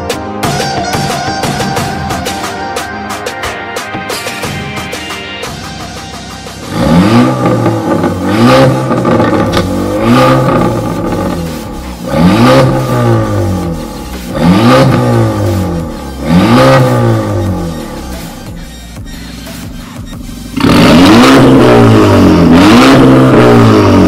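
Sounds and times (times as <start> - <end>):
car engine revving: 5.5 - 24.0.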